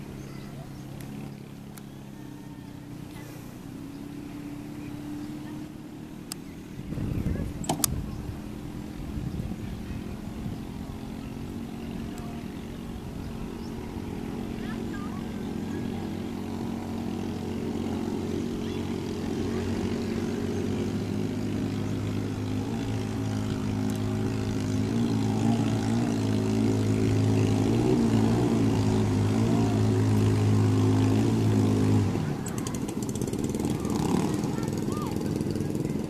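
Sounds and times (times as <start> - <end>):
boat engine droning: 0.0 - 36.0.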